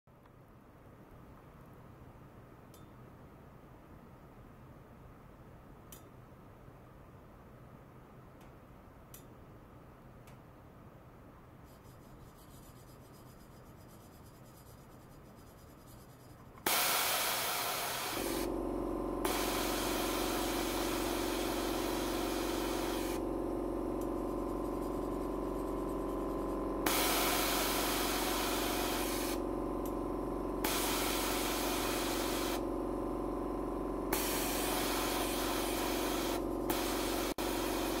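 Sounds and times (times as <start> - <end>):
high hiss: 16.7 - 18.5, 26.8 - 29.4.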